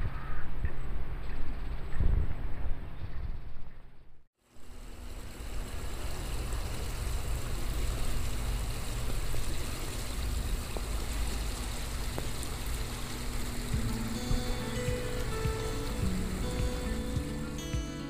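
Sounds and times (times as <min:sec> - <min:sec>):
wind rumbling on microphone: 0:00.0 - 0:04.2, 0:04.9 - 0:17.7
water running along concrete channel: 0:04.5 - 0:18.0.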